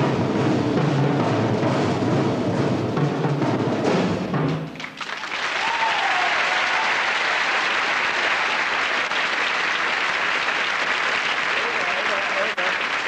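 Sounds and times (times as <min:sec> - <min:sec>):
marching band drumming: 0:00.0 - 0:04.8
audience applauding: 0:04.8 - 0:13.0.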